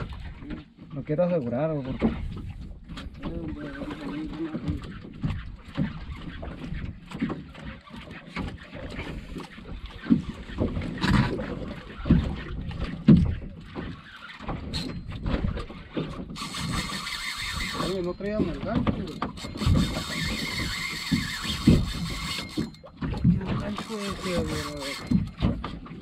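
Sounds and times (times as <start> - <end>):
water slapping against boat hull: 0.0 - 26.0
fishing reel rattling buzz: 16.4 - 18.3, 19.1 - 22.9, 23.7 - 25.2
wind on microphone: 19.6 - 25.2.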